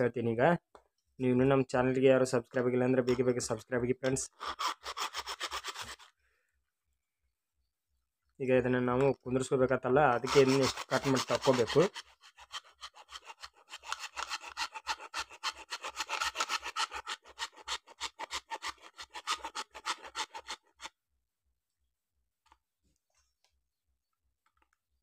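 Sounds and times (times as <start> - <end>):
hand saw cutting hard plastic: 4.3 - 6.1, 10.2 - 20.9.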